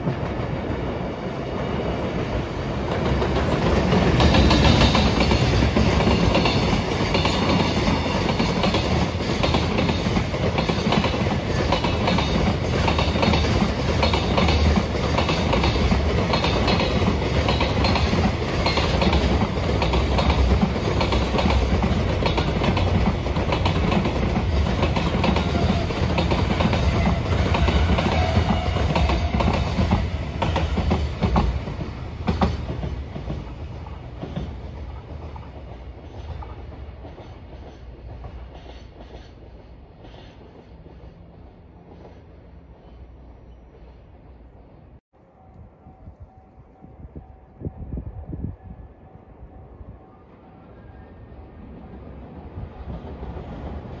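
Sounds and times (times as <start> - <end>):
train wheels clattering over rails: 1.8 - 42.3.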